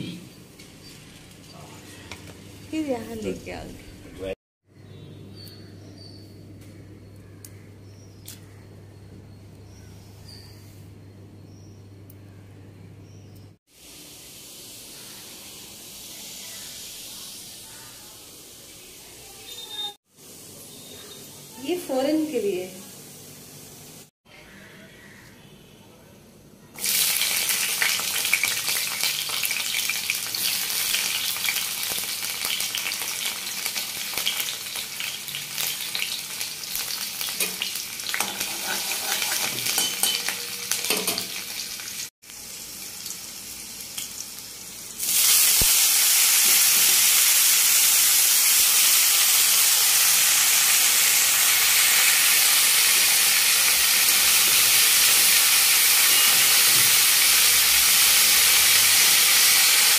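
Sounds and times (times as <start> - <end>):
chillies and garlic sizzling in oil: 0.4 - 3.7, 13.7 - 24.1, 26.8 - 59.9
leafy greens frying with hiss: 13.7 - 24.1, 26.8 - 59.9
spatula stirring in pan: 38.2 - 39.6.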